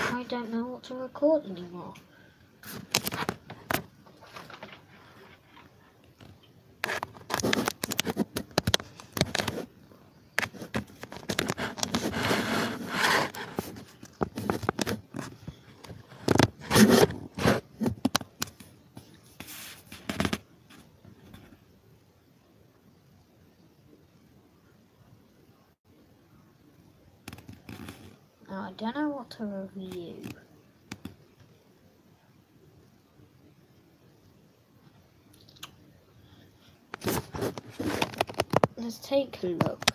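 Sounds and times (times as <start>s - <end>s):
handling scrapes and rustles: 4.1s - 5.8s, 10.4s - 18.0s, 19.0s - 21.5s, 37.0s - 38.7s.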